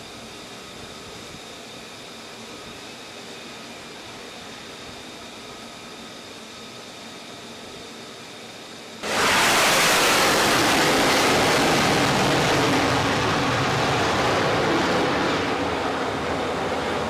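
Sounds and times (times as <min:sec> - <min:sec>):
jet engine roaring: 0:09.0 - 0:17.0.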